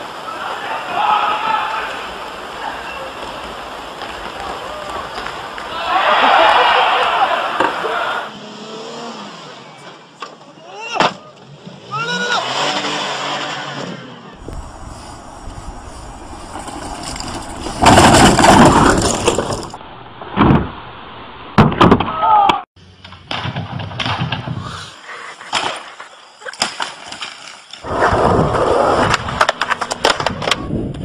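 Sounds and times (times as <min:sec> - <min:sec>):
scraping: 0:14.4 - 0:19.8
crashes and falls: 0:14.4 - 0:24.7, 0:25.5 - 0:31.0.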